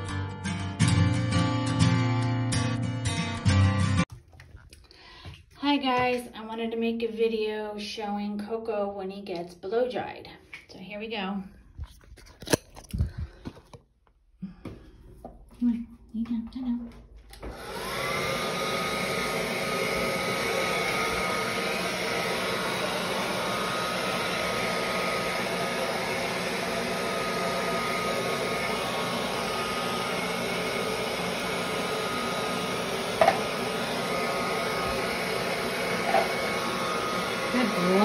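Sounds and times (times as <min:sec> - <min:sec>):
hair dryer blowing: 0:17.3 - 0:38.0.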